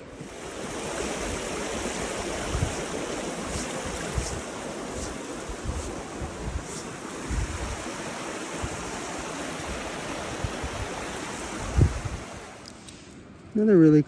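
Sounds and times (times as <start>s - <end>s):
creek rushing over rocks: 0.0s - 12.6s.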